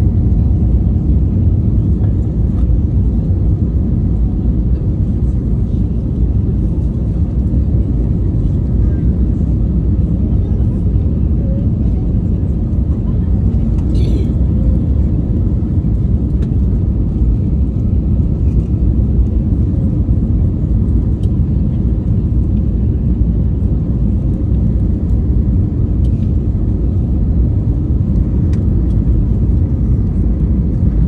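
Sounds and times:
jet engines rumbling: 0:00.0 - 0:31.0.

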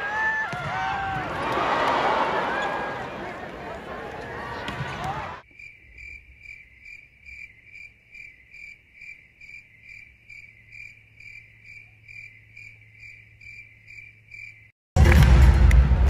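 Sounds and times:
cricket chirping: 0:05.4 - 0:14.8.

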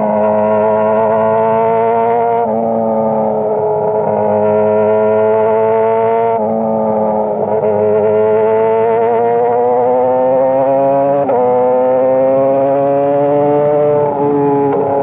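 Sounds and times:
motorcycle engine accelerating: 0:00.0 - 0:15.0.

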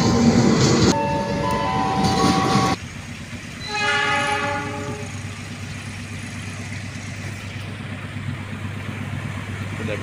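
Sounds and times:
diesel locomotive passing: 0:00.0 - 0:10.0
locomotive horn: 0:03.6 - 0:05.2
distant locomotive horn chord: 0:03.6 - 0:05.3.

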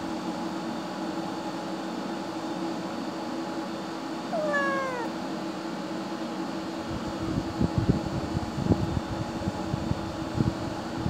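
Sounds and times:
kitten meowing: 0:04.3 - 0:05.1.

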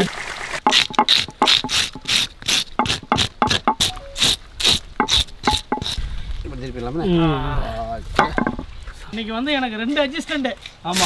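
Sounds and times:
knife scraping fish scales: 0:00.7 - 0:06.0.

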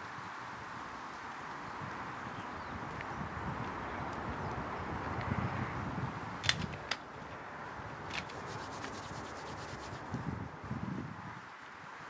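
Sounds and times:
low wind rush: 0:00.0 - 0:12.0
hands rubbing together: 0:08.1 - 0:10.2.

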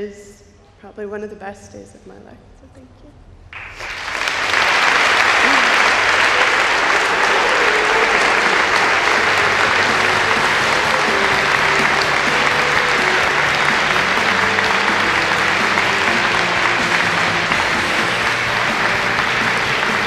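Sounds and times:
audience applauding: 0:03.5 - 0:20.0
quiet music: 0:05.9 - 0:20.0.

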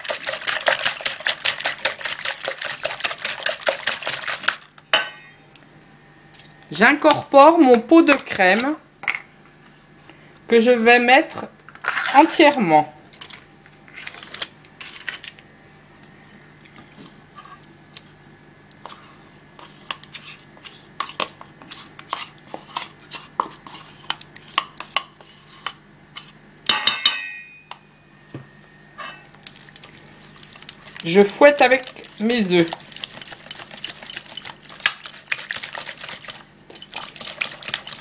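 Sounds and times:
metal utensils scraping a bowl: 0:29.0 - 0:29.3, 0:30.8 - 0:38.0.

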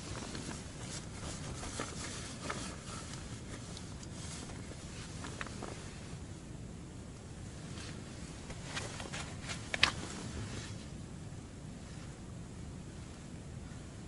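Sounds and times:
light ticks on tent fabric: 0:00.0 - 0:06.1.

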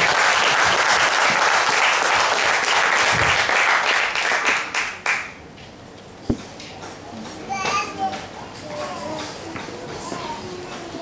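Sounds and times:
congregation applauding: 0:00.0 - 0:05.4.

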